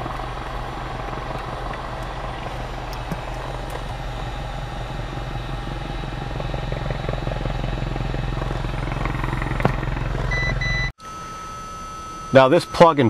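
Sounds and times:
aircraft engine and propeller drone: 0.0 - 12.8.

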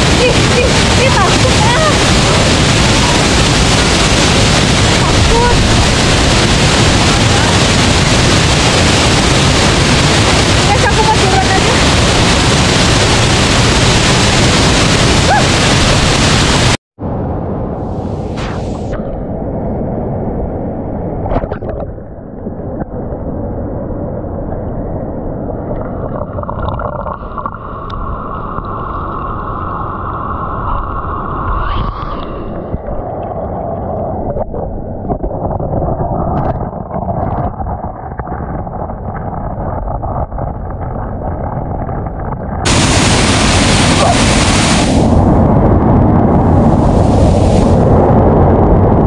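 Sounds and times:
waterfall rushing: 0.0 - 16.8, 42.7 - 45.4, 46.5 - 47.8
muffled underwater waterfall rush: 0.0 - 49.0.

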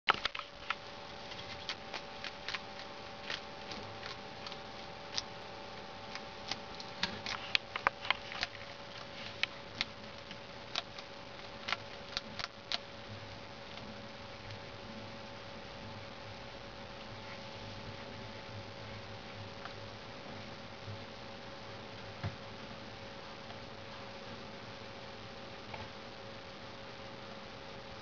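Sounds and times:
faint steady hum: 0.0 - 28.0
lizard chewing food crunchily: 0.1 - 15.0.

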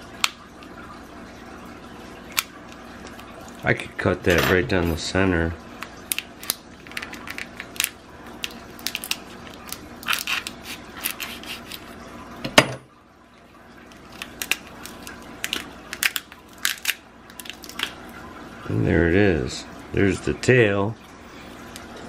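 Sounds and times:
lobster shell crackling: 2.2 - 3.7, 5.7 - 12.0, 13.8 - 18.2.

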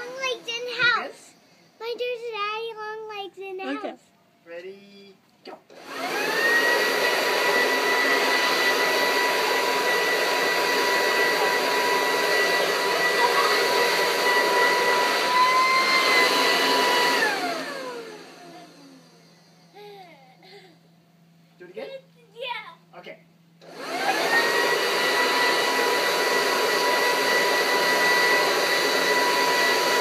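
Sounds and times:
leaf blower whining: 0.0 - 1.4, 5.7 - 20.6, 23.6 - 30.0.

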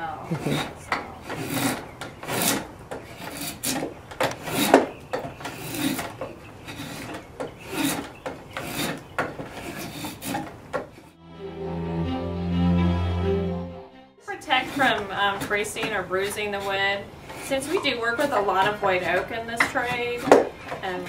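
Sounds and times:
drawknife scraping wood: 0.3 - 6.1, 6.7 - 10.9.

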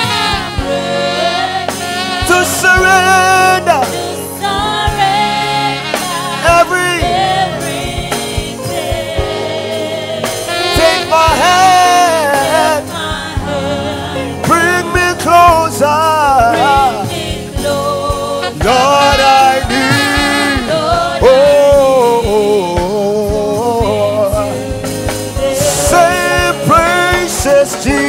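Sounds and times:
band playing: 0.0 - 28.0
drum beats: 0.0 - 28.0
voices singing: 0.0 - 28.0.

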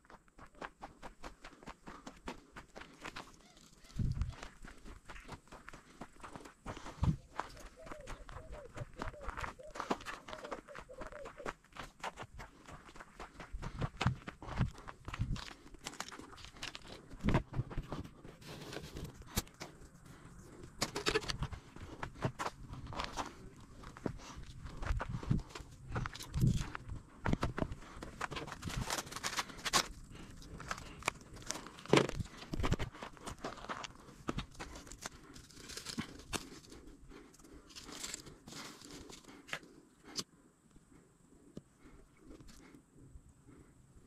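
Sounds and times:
footsteps on dry needles: 2.4 - 13.4
twigs and paper crackling: 7.3 - 11.5, 15.4 - 21.5, 25.9 - 40.2.

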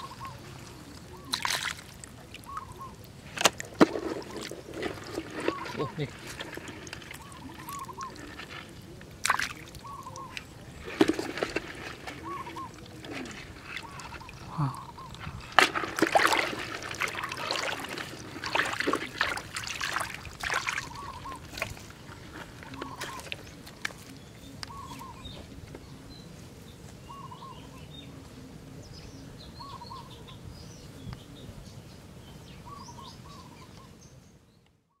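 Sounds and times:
bird calling: 0.0 - 26.3, 27.0 - 30.4
birds chirping: 0.0 - 34.8
water splashing in puddle: 1.1 - 2.7, 3.3 - 22.0.

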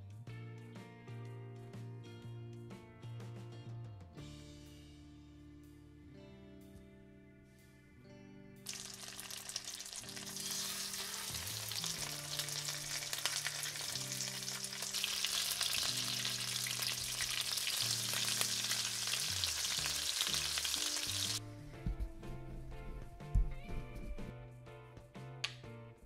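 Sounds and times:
fish sizzling in a pan: 8.7 - 21.4.

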